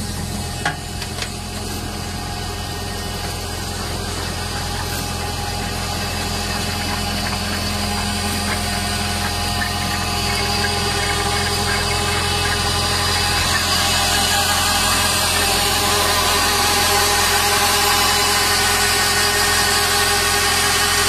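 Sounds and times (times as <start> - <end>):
harvester engine humming: 0.0 - 21.0.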